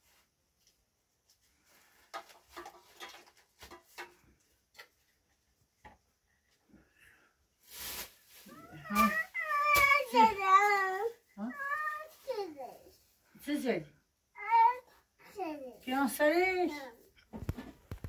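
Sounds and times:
plastic cups and dishes clinking: 2.0 - 5.0
short rustle: 7.6 - 9.2.

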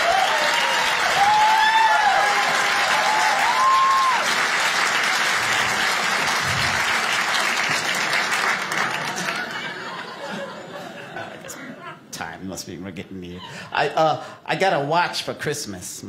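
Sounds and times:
person whooping: 0.0 - 4.3
audience applauding and cheering: 0.0 - 11.0.

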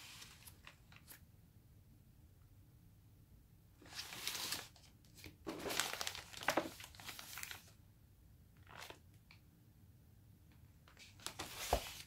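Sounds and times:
shopping bag crinkling: 5.5 - 7.6.

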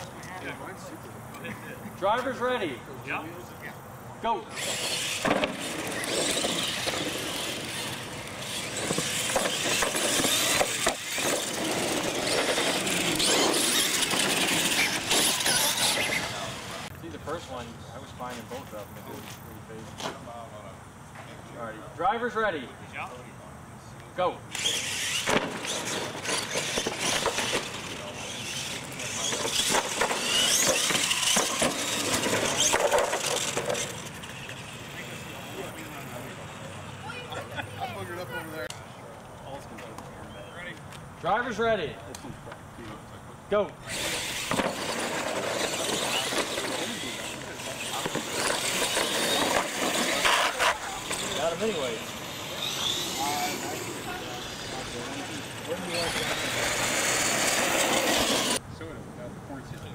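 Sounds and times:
toy truck motors whining: 4.4 - 16.9, 24.5 - 38.7, 43.8 - 58.6
tyre noise on concrete: 4.6 - 16.9, 24.6 - 34.2, 43.7 - 54.2.

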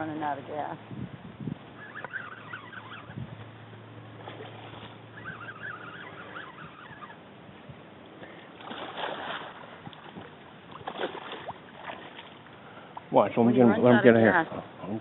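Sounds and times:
fish thrashing and splashing: 8.6 - 12.5.

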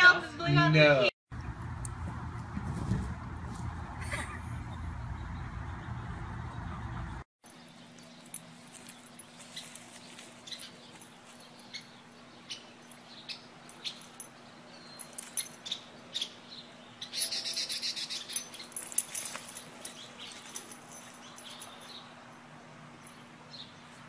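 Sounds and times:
dry leaves crunching underfoot: 7.7 - 11.8, 18.1 - 21.3.

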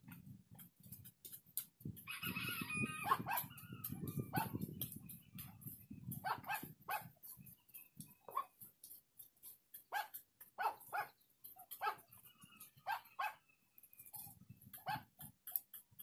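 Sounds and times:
rooster crowing: 2.1 - 4.5.

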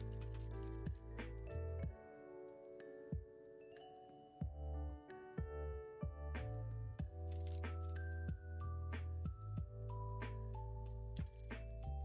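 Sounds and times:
music with deep bass and beat: 5.4 - 12.0.

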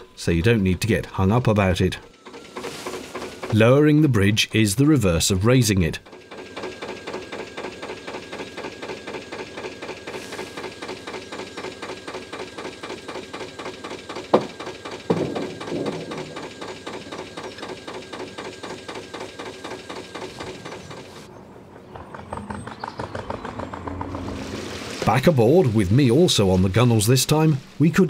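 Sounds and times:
diesel engine idling: 1.3 - 21.4.

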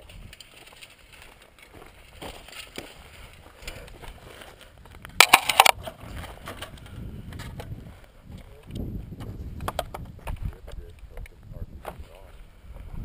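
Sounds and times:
loud crunching clatter: 5.2 - 6.0.

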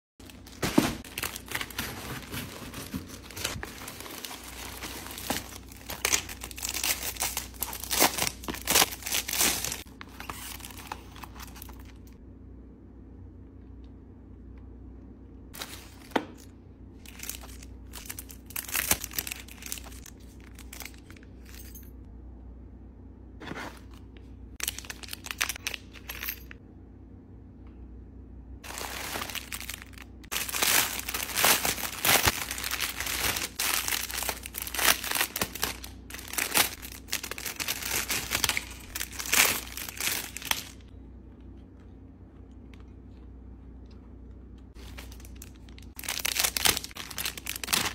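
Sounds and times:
plastic ripping and crumpling: 0.2 - 11.7, 28.6 - 40.8, 44.8 - 47.9
plastic bag crinkling: 0.2 - 12.0, 17.0 - 21.2, 24.6 - 25.8, 28.6 - 40.9, 44.8 - 47.9.

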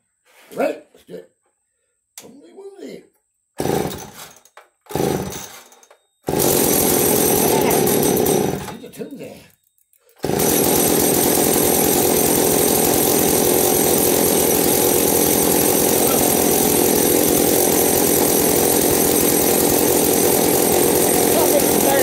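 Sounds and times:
chainsaw engine running steadily: 3.6 - 4.3, 4.9 - 5.6, 6.3 - 8.8, 10.2 - 22.0.

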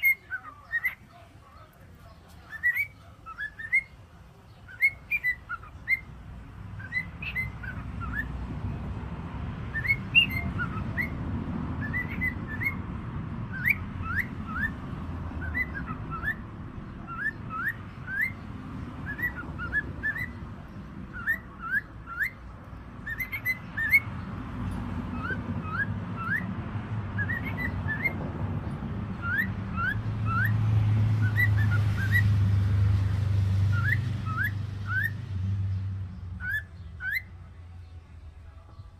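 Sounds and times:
cockatiels chirping whistles: 0.0 - 1.1, 2.5 - 4.0, 4.6 - 6.1, 6.8 - 8.3, 9.7 - 11.2, 11.8 - 12.8, 13.5 - 14.8, 15.4 - 18.4, 19.0 - 20.4, 21.1 - 22.4, 23.0 - 24.1, 25.1 - 26.5, 27.2 - 28.2, 29.2 - 30.6, 31.2 - 32.3, 33.7 - 35.2, 36.4 - 37.3.

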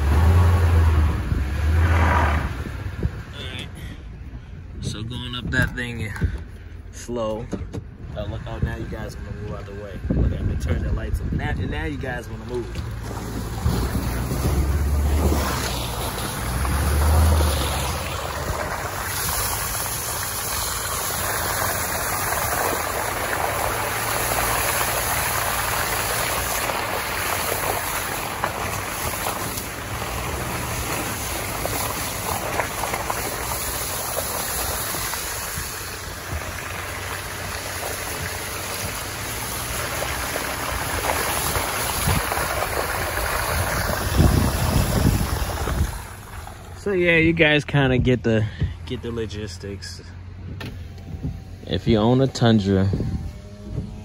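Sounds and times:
tires hissing through slush: 0.0 - 4.6, 12.0 - 47.7
low rumbles: 0.0 - 54.0
wind on microphone: 41.7 - 46.4, 50.4 - 54.0.

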